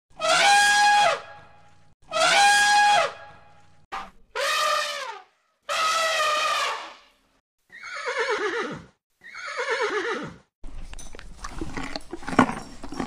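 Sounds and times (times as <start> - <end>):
elephant trumpeting: 2.1 - 3.4, 4.0 - 7.1.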